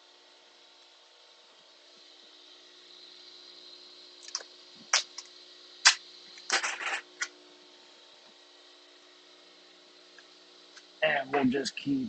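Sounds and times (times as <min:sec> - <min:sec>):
duct tape snapping: 0:04.2 - 0:07.3
duct tape rasp: 0:05.8 - 0:07.3.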